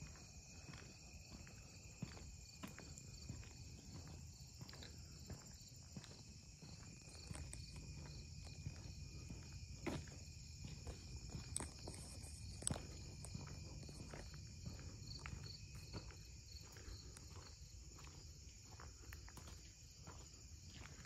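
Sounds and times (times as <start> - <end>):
footsteps: 0.0 - 21.0
insects chirring: 0.0 - 21.0
small clicks on ground: 7.0 - 8.5, 10.7 - 14.2.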